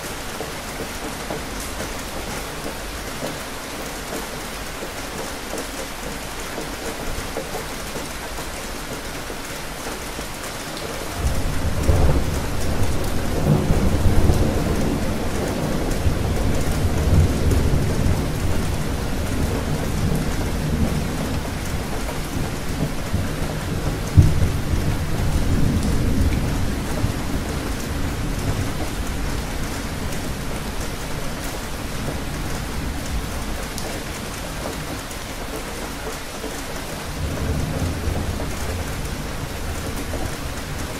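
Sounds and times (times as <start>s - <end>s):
steady rain: 0.0s - 40.9s
thunder rumbling: 11.0s - 34.8s.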